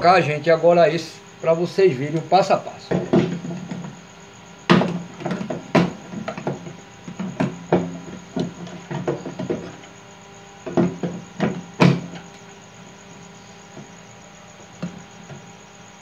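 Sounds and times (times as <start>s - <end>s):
metal knocks and clicks: 2.9s - 4.0s, 4.7s - 9.9s, 10.6s - 12.4s.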